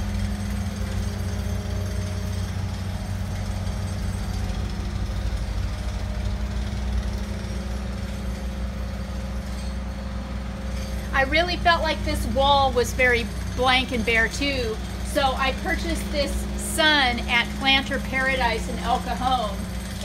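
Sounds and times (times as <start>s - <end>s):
engine droning steadily: 0.0s - 20.0s.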